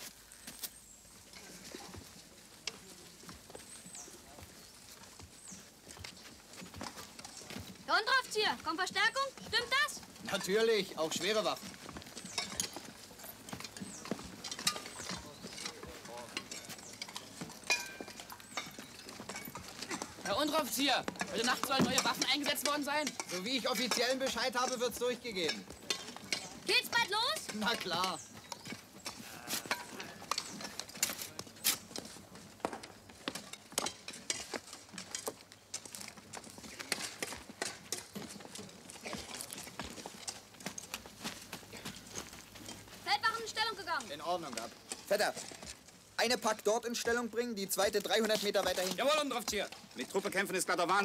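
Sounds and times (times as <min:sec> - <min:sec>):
boots walking: 0:00.0 - 0:51.0
knocks and clatter of gear: 0:01.2 - 0:51.0
spades digging: 0:12.2 - 0:41.1
faint voices: 0:29.2 - 0:31.6.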